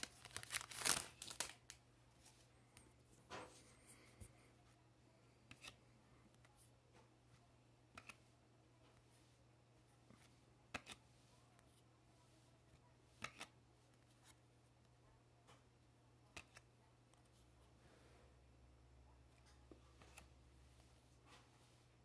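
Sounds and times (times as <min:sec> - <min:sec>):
trading cards flipping: 0:00.0 - 0:01.8.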